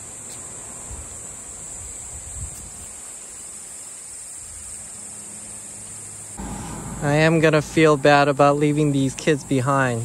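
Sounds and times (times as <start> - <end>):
crickets chirring: 0.0 - 10.0
soft low thumps: 6.4 - 10.0.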